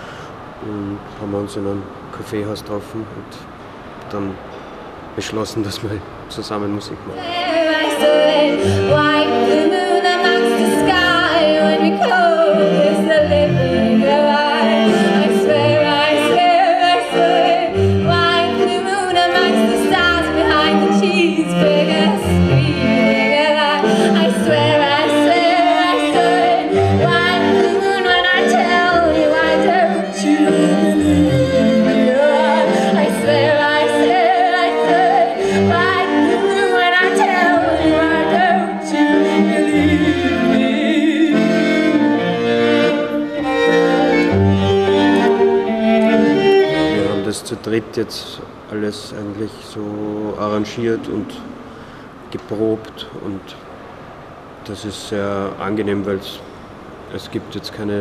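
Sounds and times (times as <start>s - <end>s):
woman singing with vibrato: 7.1s - 47.0s
cello: 7.2s - 47.5s
piano accordion: 7.2s - 47.8s.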